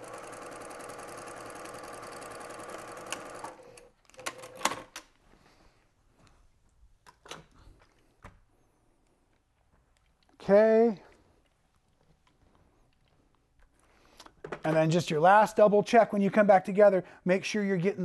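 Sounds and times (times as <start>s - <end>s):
sewing machine stitching: 0.0s - 4.9s.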